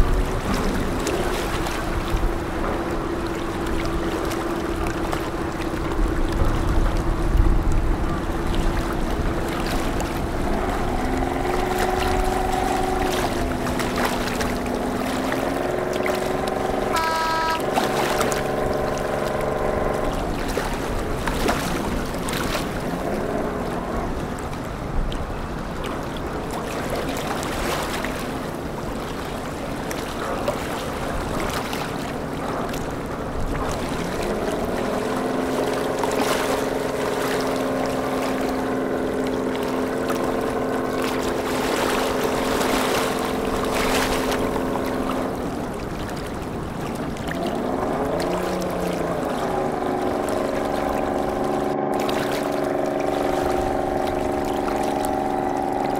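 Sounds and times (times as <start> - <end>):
boat diesel engine running: 0.0 - 25.6, 32.2 - 55.9
wind on microphone: 0.0 - 36.5.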